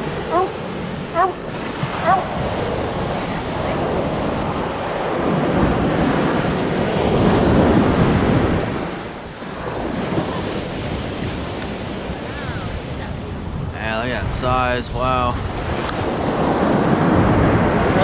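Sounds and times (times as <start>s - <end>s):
ocean surf breaking: 0.0s - 18.0s
wind buffeting microphone: 0.0s - 18.0s.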